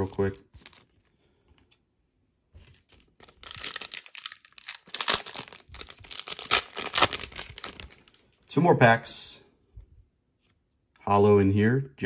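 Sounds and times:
foil wrapper crinkling: 0:02.7 - 0:08.2.

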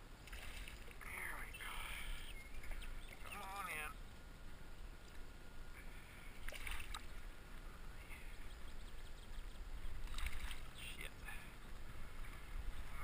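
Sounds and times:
steady low rumble: 0:00.0 - 0:13.0
fish splashing in water: 0:00.2 - 0:00.9, 0:06.4 - 0:07.1, 0:10.0 - 0:10.7.

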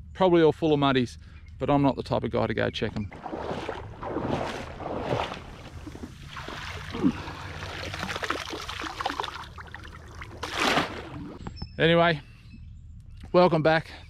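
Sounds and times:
water sloshing and splashing: 0:02.9 - 0:11.4
brief squeak: 0:11.4 - 0:12.7.

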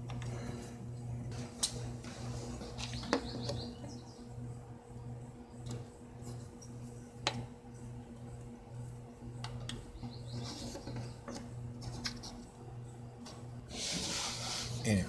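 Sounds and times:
low pulsing hum: 0:00.0 - 0:15.0
pencil scratching on plywood: 0:13.7 - 0:14.8.

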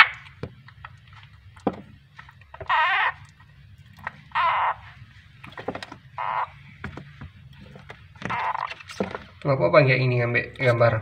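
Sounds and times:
faint clicks and rustles: 0:00.2 - 0:09.6
frog screaming: 0:02.6 - 0:03.3, 0:04.2 - 0:05.0, 0:06.2 - 0:06.6, 0:08.2 - 0:08.7.

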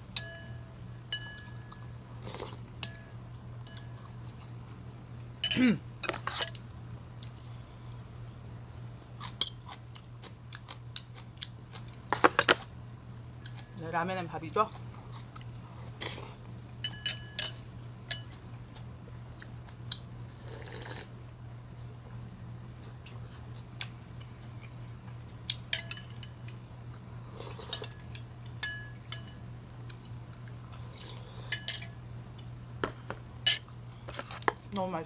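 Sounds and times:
metal spoon clinking on ceramic bowl: 0:00.2 - 0:01.8, 0:16.8 - 0:18.4, 0:25.5 - 0:26.4, 0:28.6 - 0:29.4, 0:31.5 - 0:32.0, 0:33.5 - 0:33.7
person slurping soup: 0:20.4 - 0:21.1.

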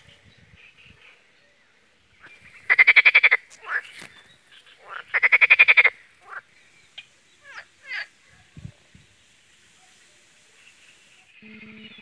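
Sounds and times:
frog rattling croak: 0:02.7 - 0:03.9, 0:04.6 - 0:08.1.

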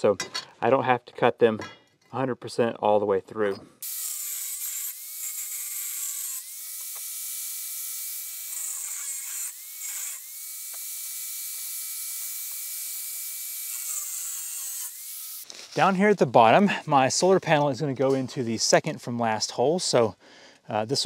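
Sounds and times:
angle grinder cutting metal: 0:03.8 - 0:15.5.

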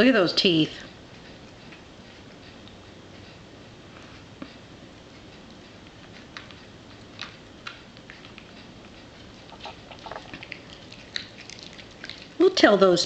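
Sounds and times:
dog chewing bone: 0:05.4 - 0:12.5.

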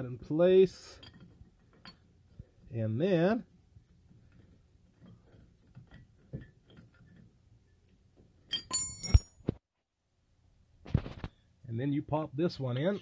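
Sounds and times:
faint handling rustle: 0:00.1 - 0:08.4
steel tool parts clinking: 0:08.5 - 0:09.5.

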